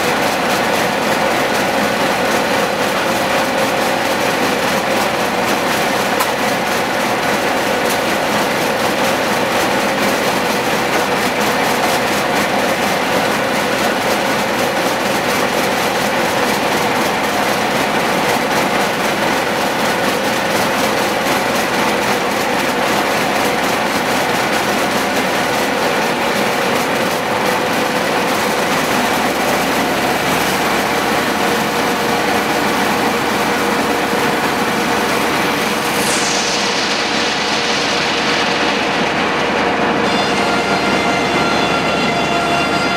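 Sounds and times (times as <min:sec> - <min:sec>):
circular sawmill cutting log: 0:00.0 - 0:42.9.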